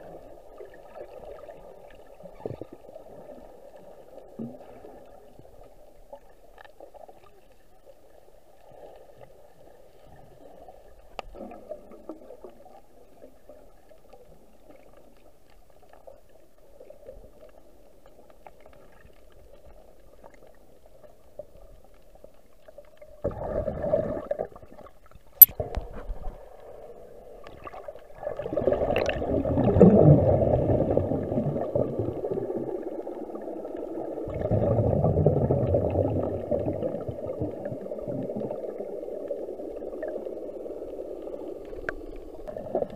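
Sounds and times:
muffled underwater gurgling: 0:28.1 - 0:42.9.

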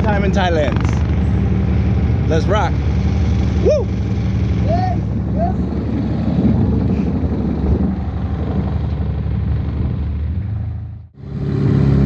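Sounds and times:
boat engine droning: 0:00.0 - 0:12.0.

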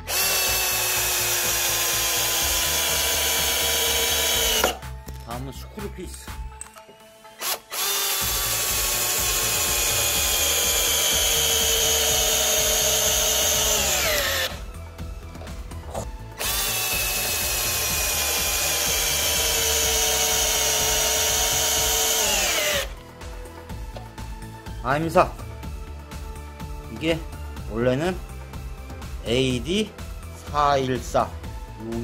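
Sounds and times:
cordless drill driving screws: 0:00.0 - 0:04.8, 0:07.2 - 0:14.6, 0:16.3 - 0:23.0.

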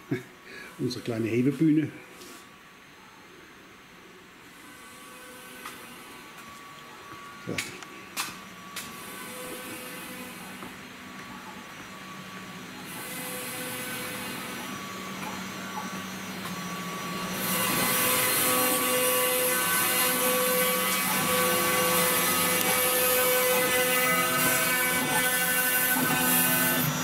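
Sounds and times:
dust extraction vacuum hiss: 0:00.0 - 0:02.6, 0:04.7 - 0:27.0
router spindle milling whine: 0:04.5 - 0:27.0.

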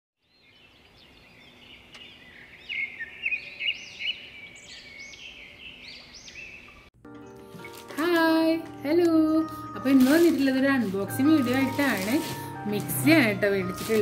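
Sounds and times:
high background bird chorus: 0:00.2 - 0:07.8, 0:09.2 - 0:12.3
birds chirping and singing: 0:00.2 - 0:14.0.

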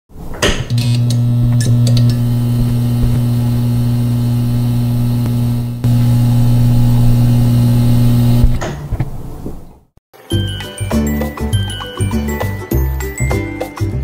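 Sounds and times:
computer electrical hum: 0:00.7 - 0:08.6.

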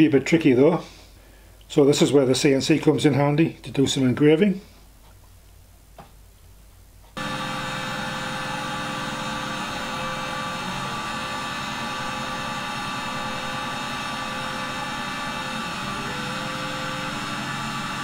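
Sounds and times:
milling machine whine: 0:07.2 - 0:18.0.

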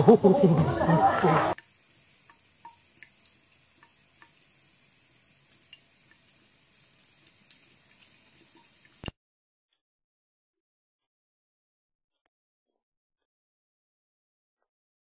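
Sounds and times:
water trickling into sink: 0:01.5 - 0:09.1.

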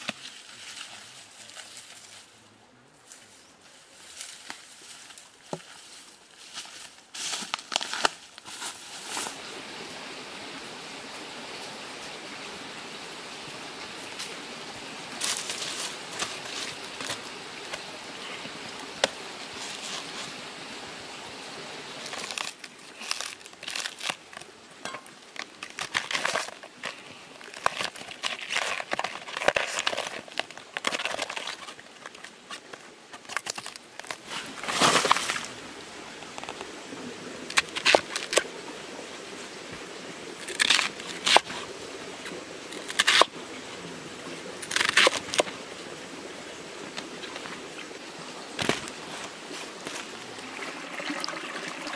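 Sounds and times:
steady hiss: 0:00.0 - 0:50.6
plant stem crinkling and tearing: 0:07.2 - 0:09.3, 0:22.0 - 0:24.5, 0:25.3 - 0:35.5, 0:37.5 - 0:38.5, 0:40.4 - 0:41.6, 0:42.7 - 0:43.3, 0:44.6 - 0:45.5.

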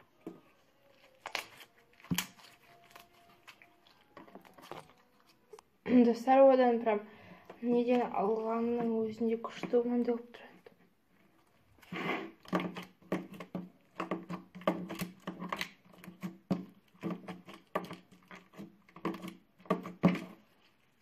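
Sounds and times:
slime squishing and popping: 0:00.9 - 0:05.7.

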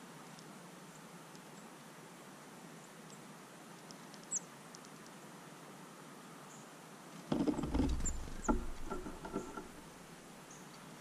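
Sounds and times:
bird knocking and rattling feeder: 0:07.3 - 0:09.9.

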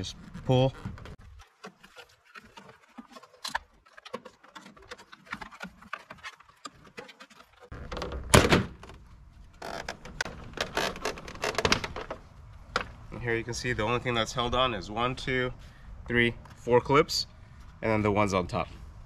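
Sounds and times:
plastic clicks and creaks: 0:00.0 - 0:13.0
plastic rattling: 0:00.1 - 0:13.0.

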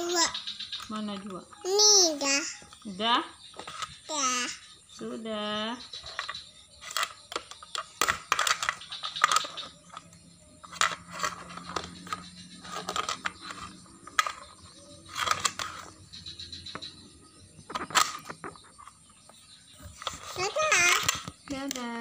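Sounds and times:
plastic toy pieces clattering: 0:03.6 - 0:04.4, 0:06.0 - 0:16.0, 0:17.7 - 0:18.4, 0:19.9 - 0:22.0.

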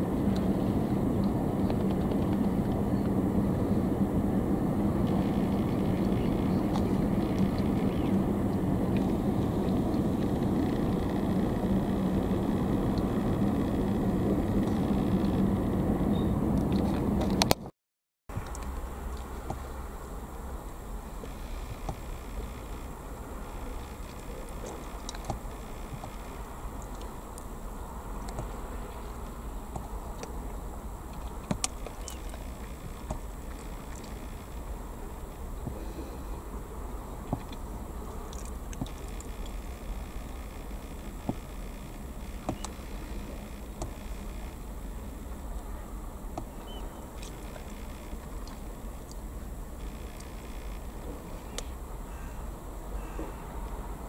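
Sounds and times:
faint steady hum: 0:00.0 - 0:17.6, 0:18.3 - 0:54.0
low outdoor rumble: 0:00.0 - 0:17.7, 0:18.3 - 0:54.0
faint ticks: 0:18.4 - 0:27.5, 0:28.2 - 0:36.2, 0:37.2 - 0:44.8, 0:46.4 - 0:52.3.

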